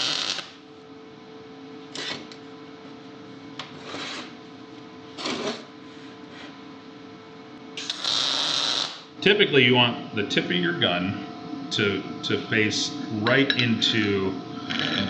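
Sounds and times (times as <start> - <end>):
welding arc crackles: 0.0 - 0.6, 7.8 - 9.1
welder humming: 0.0 - 0.7, 7.8 - 15.0.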